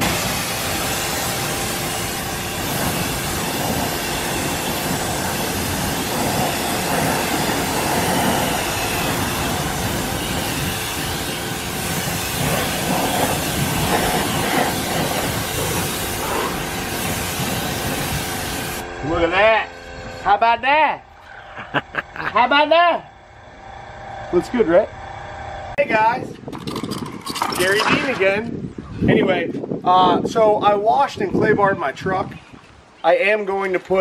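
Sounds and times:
water jet spraying a tire: 0:00.0 - 0:18.8.

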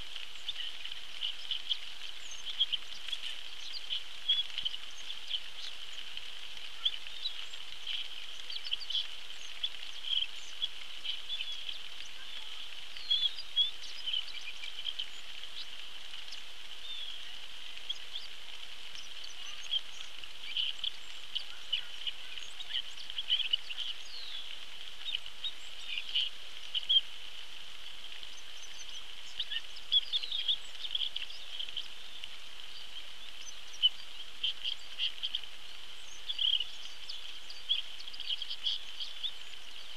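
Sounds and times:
rainfall hiss: 0:00.0 - 0:39.9
bird chirps and calls: 0:06.7 - 0:27.1, 0:28.3 - 0:39.9.

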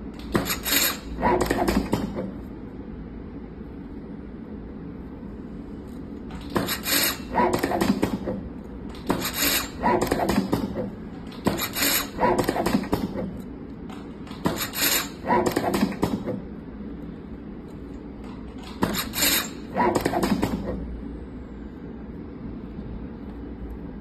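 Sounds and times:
steady low hum: 0:00.0 - 0:24.0
tape wrapping machine bursts: 0:00.2 - 0:02.2, 0:06.4 - 0:08.4, 0:09.0 - 0:13.3, 0:14.3 - 0:16.3, 0:18.6 - 0:20.8.

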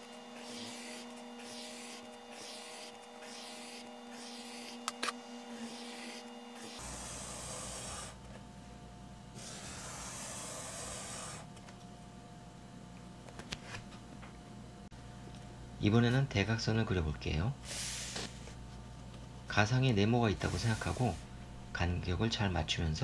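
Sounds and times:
pencil scratching on paper: 0:00.4 - 0:04.8, 0:05.6 - 0:08.2.

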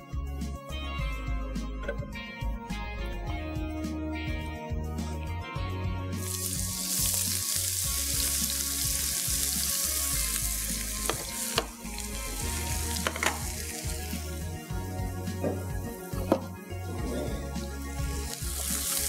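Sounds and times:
garlic sizzling in hot fat: 0:06.2 - 0:19.0.

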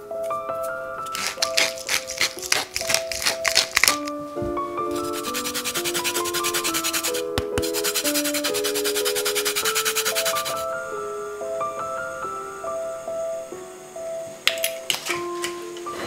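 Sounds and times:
gentle melodic music: 0:00.0 - 0:16.0
lemon rasping on grater: 0:01.1 - 0:03.9, 0:05.0 - 0:10.6.

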